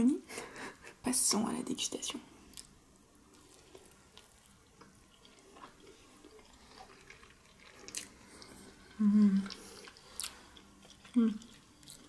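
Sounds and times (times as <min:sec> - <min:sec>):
person chewing: 0:02.5 - 0:12.0.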